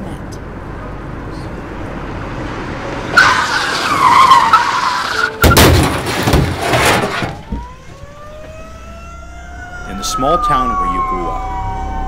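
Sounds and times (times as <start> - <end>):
car tyres screeching: 1.4 - 7.8
sudden loud crash: 5.4 - 7.6
siren: 7.4 - 12.0.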